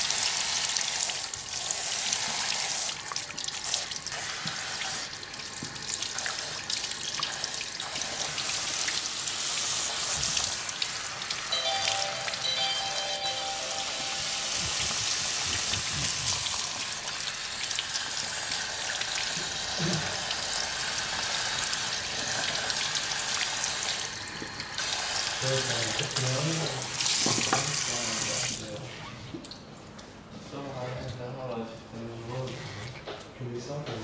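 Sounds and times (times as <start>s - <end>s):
water spraying into sink: 0.0s - 11.6s, 14.4s - 28.7s.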